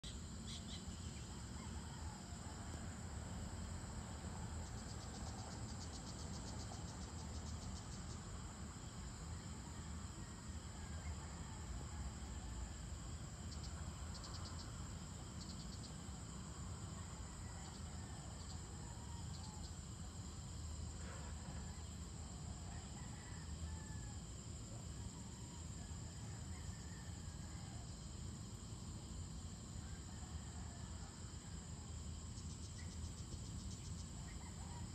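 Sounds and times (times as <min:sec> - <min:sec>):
insects trilling: 0:00.0 - 0:34.9
pulsing insect call: 0:00.0 - 0:34.9.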